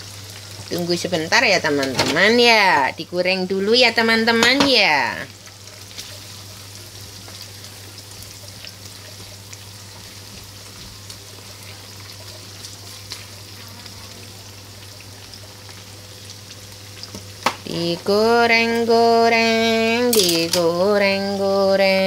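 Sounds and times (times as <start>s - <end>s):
spatula crackles: 0.0s - 22.0s
vegetables sizzling in oil: 0.0s - 22.0s
sing-song voice: 17.6s - 22.0s.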